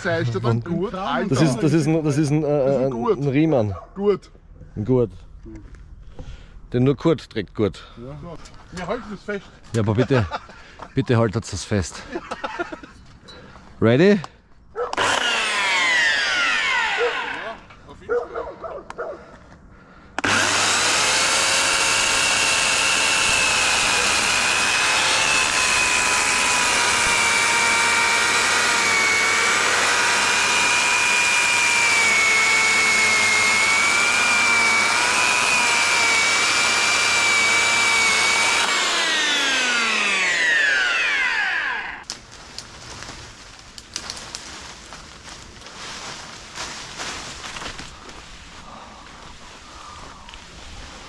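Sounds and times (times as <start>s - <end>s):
chainsaw cutting branch: 15.0s - 17.7s, 20.2s - 42.7s.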